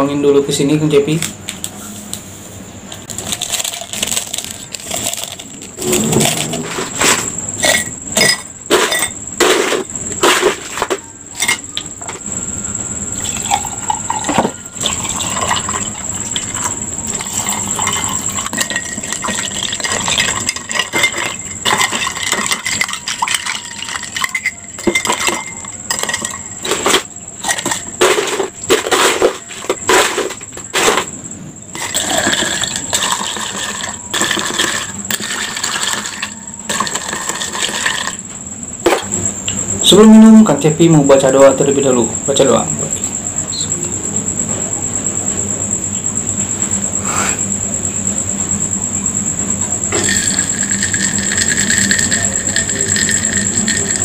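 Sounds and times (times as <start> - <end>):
ice cubes clinking into glass: 3.1 - 6.5, 13.2 - 31.0, 31.8 - 38.2, 49.9 - 54.0
spoon clinking against glass: 7.6 - 9.2, 16.4 - 27.9, 49.9 - 54.0
tea pouring: 13.2 - 25.5, 50.0 - 54.0.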